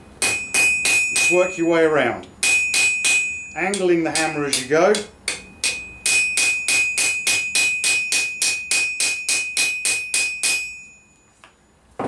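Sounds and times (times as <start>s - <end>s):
hammer striking rivet on anvil: 0.2s - 1.4s, 2.4s - 10.7s
anvil ringing: 0.2s - 11.2s.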